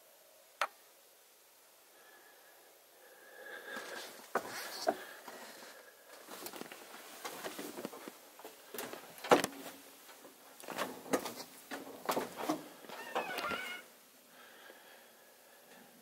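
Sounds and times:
footsteps on metal steps: 0:07.2 - 0:13.0.

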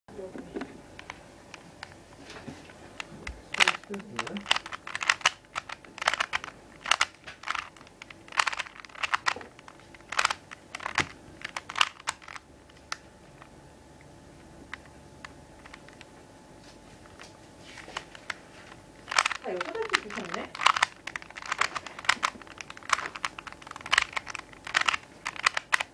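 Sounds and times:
plastic puzzle cube clicking: 0:03.0 - 0:13.0, 0:15.6 - 0:16.1, 0:19.0 - 0:25.9.

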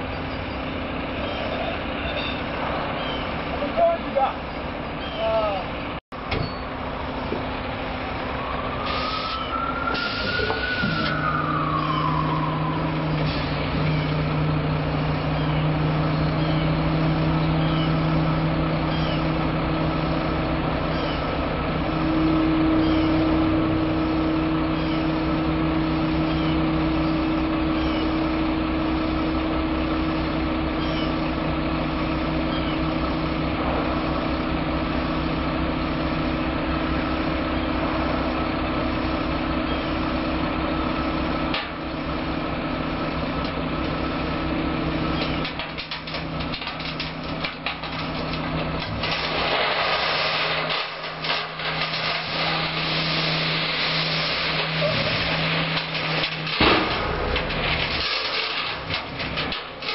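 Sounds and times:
diesel truck engine running: 0:00.0 - 0:59.9
hydraulic hoist raising: 0:08.8 - 0:14.3.

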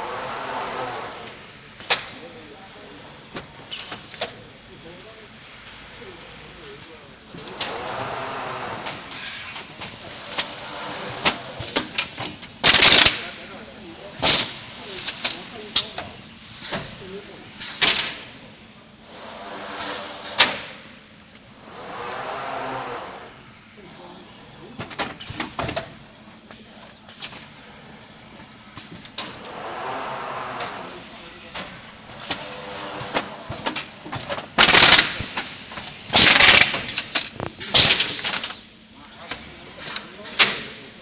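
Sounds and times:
pneumatic air hissing: 0:00.0 - 0:02.2, 0:03.6 - 0:04.4, 0:06.8 - 0:13.2, 0:16.6 - 0:39.4
rushing hiss: 0:19.0 - 0:20.7, 0:21.5 - 0:24.6, 0:27.4 - 0:33.4
mechanical clicks and clacks: 0:33.0 - 0:38.6.

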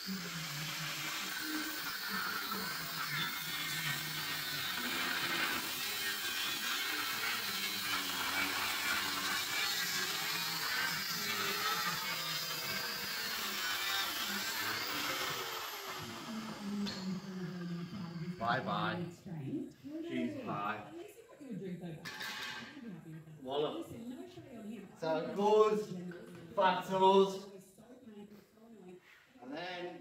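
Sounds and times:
angle grinder cutting steel: 0:00.0 - 0:18.9.

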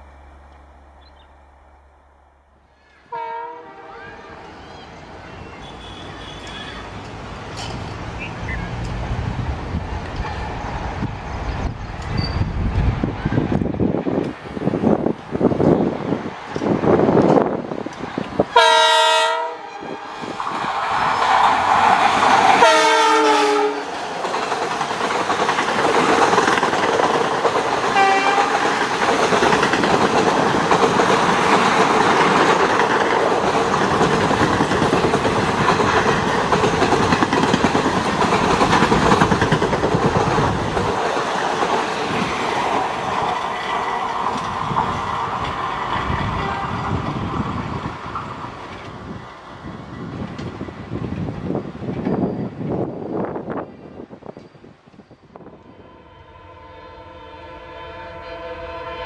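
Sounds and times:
train wheels on rails: 0:00.0 - 0:55.8
locomotive horn blasts: 0:03.1 - 0:04.2, 0:18.5 - 0:20.1, 0:22.6 - 0:23.9, 0:28.0 - 0:28.6, 0:46.4 - 0:46.9, 0:55.6 - 0:59.0.

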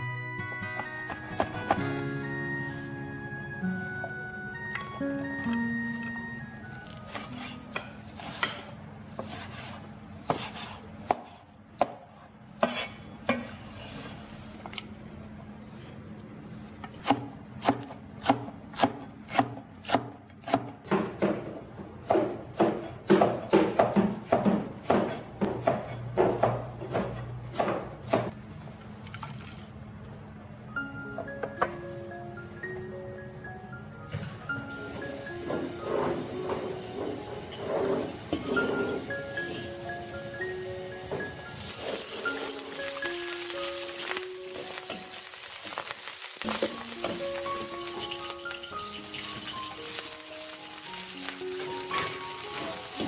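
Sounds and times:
xylophone-like background music: 0:00.0 - 0:07.7, 0:30.7 - 0:37.5, 0:38.3 - 0:45.1, 0:46.5 - 0:53.0
cleaver chopping on cutting board: 0:10.2 - 0:12.0, 0:22.1 - 0:28.3.

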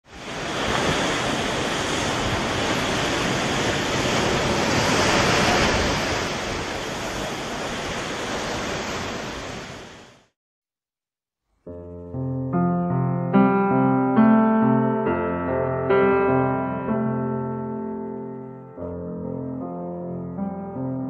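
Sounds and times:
strong wind blowing: 0:00.1 - 0:10.2
surf breaking over rocks: 0:00.1 - 0:10.3.

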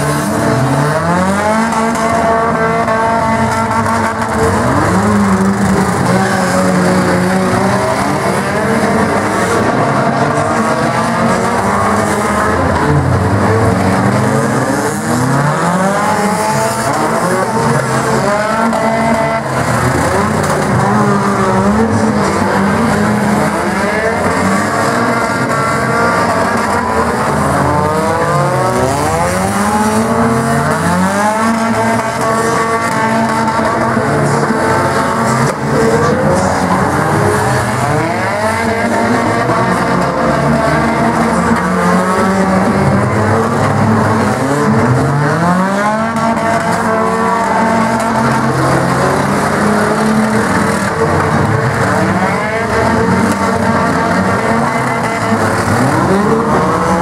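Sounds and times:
small car engines revving: 0:00.0 - 0:57.0.

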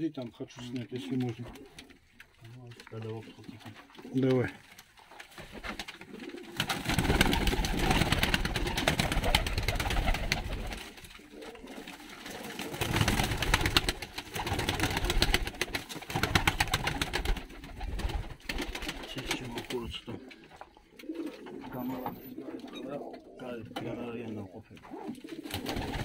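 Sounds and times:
pigeons cooing: 0:00.8 - 0:02.3, 0:05.2 - 0:26.0
pigeons flapping wings: 0:02.7 - 0:20.2, 0:24.9 - 0:26.0.

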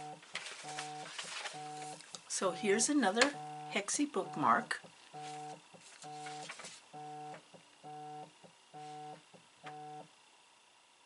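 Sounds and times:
telephone ringing beep tone: 0:00.0 - 0:01.9, 0:03.3 - 0:06.4.

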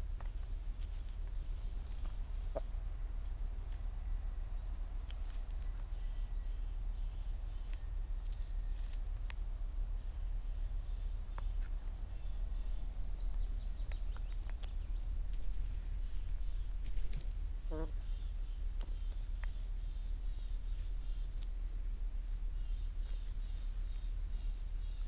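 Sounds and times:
gull pecking clicks and taps: 0:13.3 - 0:15.5.

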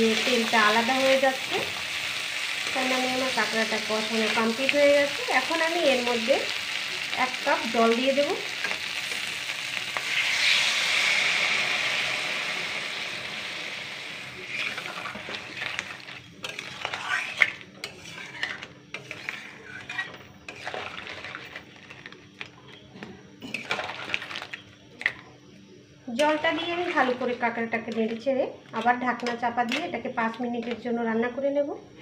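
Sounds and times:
water sizzling in hot pan: 0:00.0 - 0:21.8
metal spatula scraping pan: 0:14.4 - 0:22.0, 0:23.4 - 0:24.3, 0:26.2 - 0:30.0.

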